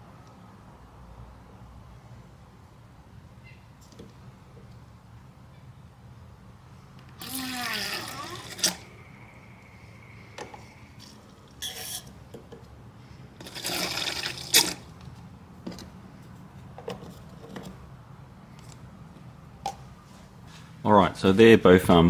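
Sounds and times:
metal scraping: 0:10.5 - 0:12.2.

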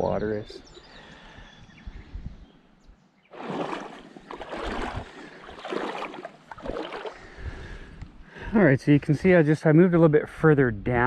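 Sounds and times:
water sloshing around wading legs: 0:03.3 - 0:07.4.

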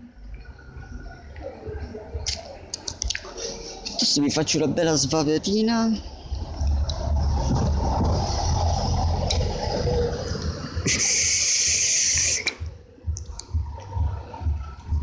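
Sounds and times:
low wind rumble: 0:04.4 - 0:15.0
electronic cigarette hiss: 0:10.9 - 0:12.6.

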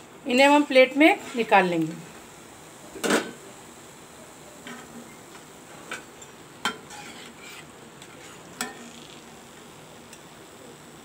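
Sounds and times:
oil sizzling: 0:00.0 - 0:11.0
metal spoon clinking on pan: 0:08.6 - 0:08.8.

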